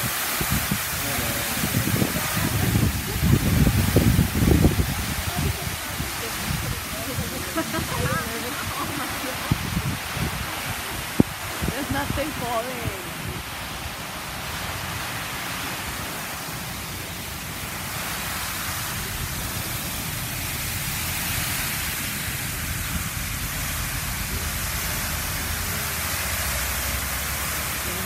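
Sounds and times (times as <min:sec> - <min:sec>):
waterfall rushing hiss: 0:00.0 - 0:28.0
low rumble: 0:18.3 - 0:27.6.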